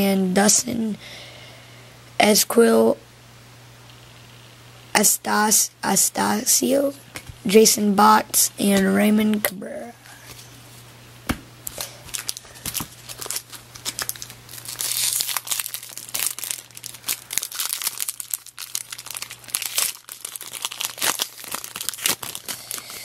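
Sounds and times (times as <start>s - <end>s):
foil wrapper crinkling and tearing: 11.7s - 23.0s.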